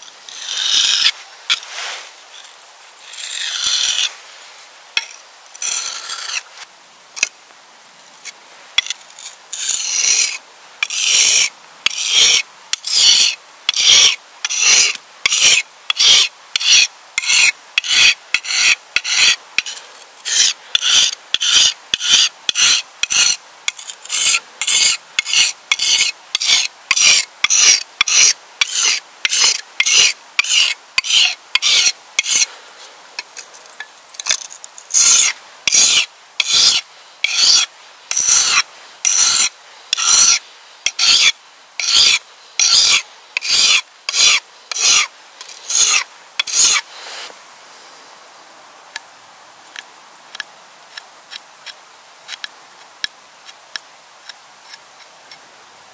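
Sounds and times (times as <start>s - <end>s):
hand tool rasping strokes: 0.3s - 4.1s, 5.0s - 6.5s, 8.8s - 32.5s, 33.2s - 47.3s.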